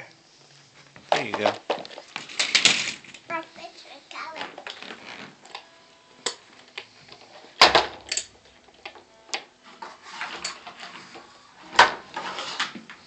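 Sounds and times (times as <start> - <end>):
plastic toy cart clattering: 1.1 - 3.3, 4.3 - 5.6, 9.8 - 13.0.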